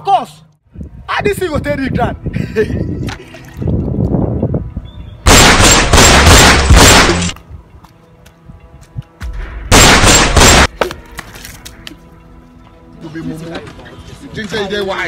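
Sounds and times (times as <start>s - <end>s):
rapid gunfire bursts: 5.3s - 7.3s.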